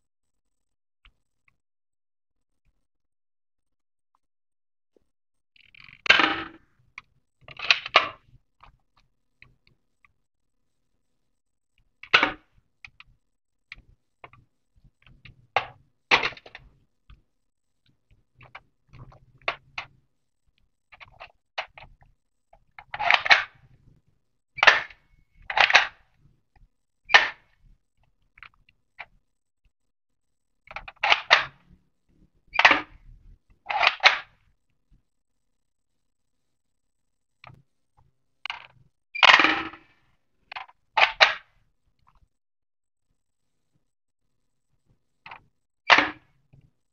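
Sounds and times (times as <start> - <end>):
plastic toy gun clacks and snaps: 22.9 - 23.5, 24.6 - 26.0, 27.1 - 27.5, 30.7 - 31.5, 32.6 - 32.9, 33.7 - 34.3, 40.5 - 41.5, 45.3 - 46.3.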